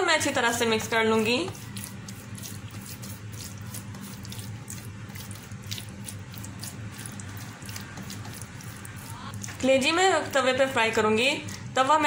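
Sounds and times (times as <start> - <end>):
steady low hum: 0.0 - 12.0
wet squelching of raw meat: 1.2 - 10.5.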